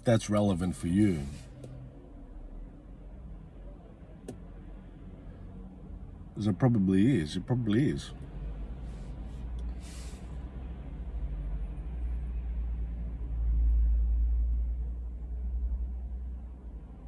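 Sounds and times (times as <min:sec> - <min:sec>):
vehicle rumble inside car: 0:00.0 - 0:17.0
short hiss: 0:09.7 - 0:10.3.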